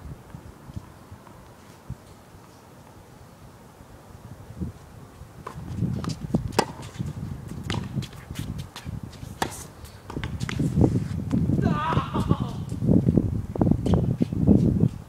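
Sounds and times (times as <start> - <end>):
shoes and ball clicking on court: 5.4 - 11.5.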